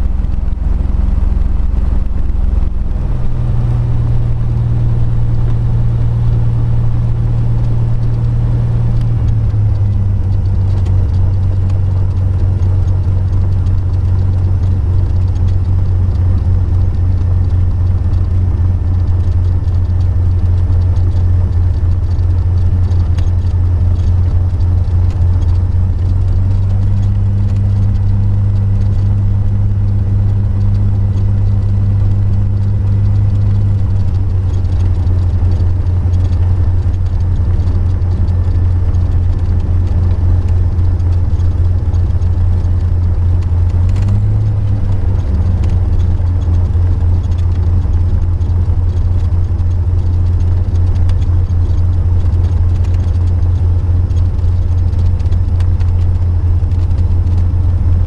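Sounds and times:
light aircraft engine droning: 0:00.0 - 0:58.0.

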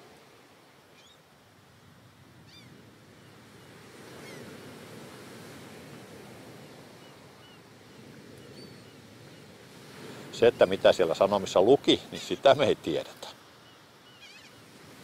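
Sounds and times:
sea waves: 0:00.0 - 0:15.0
wind: 0:00.0 - 0:15.0.

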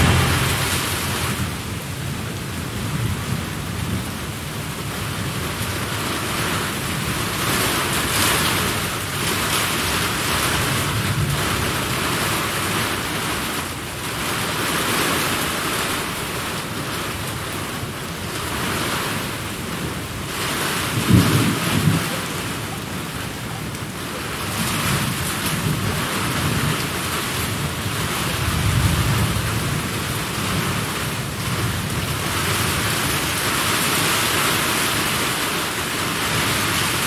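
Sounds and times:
rolling thunder: 0:00.0 - 0:04.1, 0:20.7 - 0:23.0, 0:27.6 - 0:33.1
steady rain: 0:00.0 - 0:37.0.

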